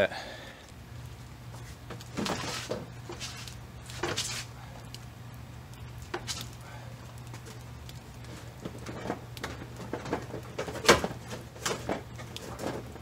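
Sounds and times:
steady low hum: 0:00.0 - 0:13.0
scuffing and rustling: 0:01.5 - 0:04.5.

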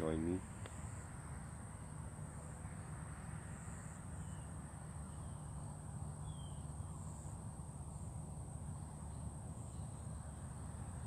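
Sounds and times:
insects trilling: 0:00.0 - 0:11.0
low steady rumble: 0:00.0 - 0:11.0
faint bird chirps: 0:03.5 - 0:08.1, 0:08.8 - 0:11.0.

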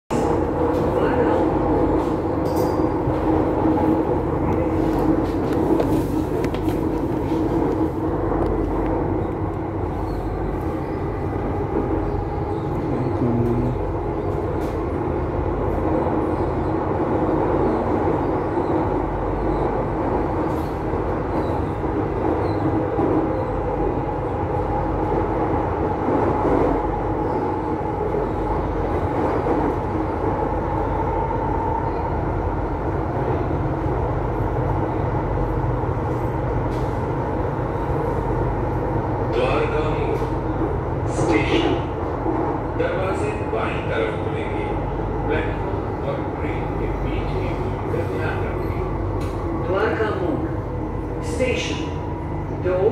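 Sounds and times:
train wheels rumbling on rails: 0:00.1 - 0:52.9.

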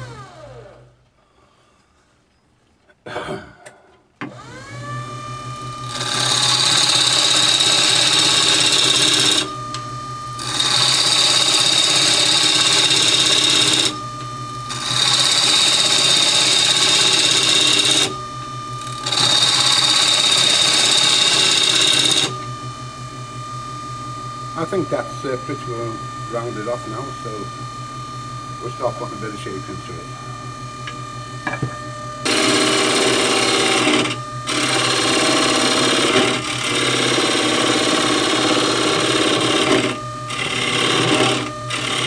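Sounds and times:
wood lathe whine and hum: 0:00.0 - 0:01.1, 0:04.2 - 0:42.0
gouge cutting spinning wood: 0:04.3 - 0:22.5, 0:24.6 - 0:27.6, 0:32.2 - 0:42.0.

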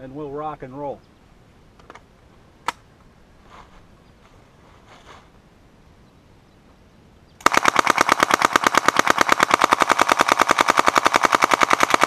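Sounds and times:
submachine gun full auto burst: 0:07.4 - 0:12.0.

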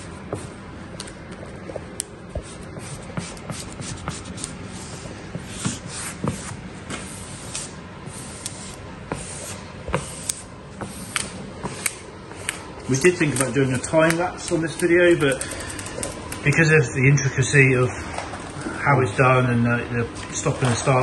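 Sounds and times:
steady low hum: 0:00.0 - 0:21.0
squeegee swiping over film: 0:02.3 - 0:13.8
film crackling: 0:11.2 - 0:16.9.

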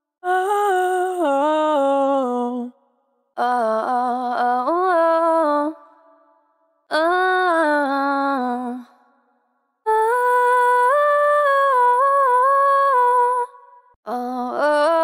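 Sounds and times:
woman singing wordless phrases: 0:00.2 - 0:02.8, 0:03.4 - 0:06.1, 0:06.9 - 0:09.0, 0:09.9 - 0:15.0.

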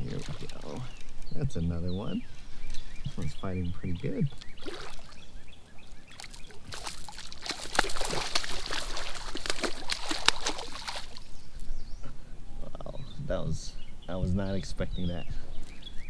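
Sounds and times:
fish splashing in water: 0:04.5 - 0:05.2, 0:06.1 - 0:11.4.

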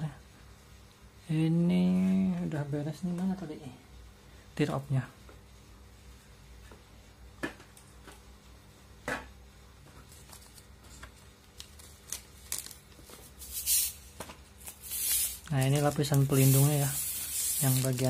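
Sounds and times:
thin plastic crinkling: 0:10.0 - 0:14.0, 0:14.6 - 0:18.0.

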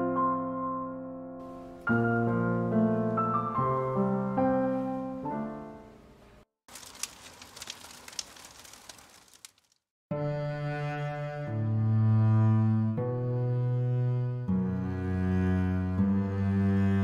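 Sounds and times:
slow piano melody: 0:00.0 - 0:06.1
faint irregular crackling: 0:06.7 - 0:09.9.

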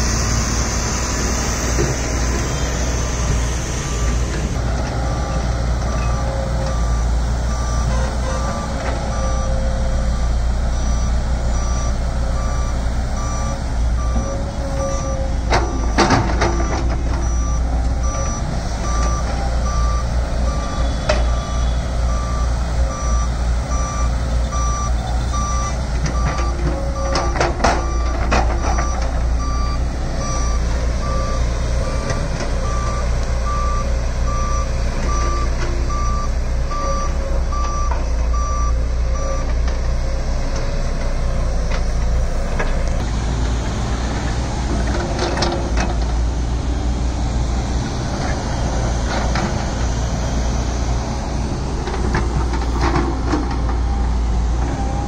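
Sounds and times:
excavator diesel engine running: 0:00.0 - 0:55.0
electronic alarm beeps: 0:16.6 - 0:27.2
knocks and clatter: 0:25.9 - 0:29.3, 0:51.8 - 0:54.8.

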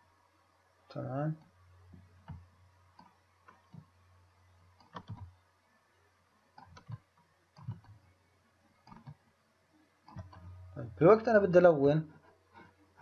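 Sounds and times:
low electrical hum: 0:00.0 - 0:13.0
computer mouse clicks: 0:02.2 - 0:03.9, 0:04.8 - 0:05.4, 0:06.5 - 0:08.0, 0:08.8 - 0:09.2, 0:10.0 - 0:10.6.

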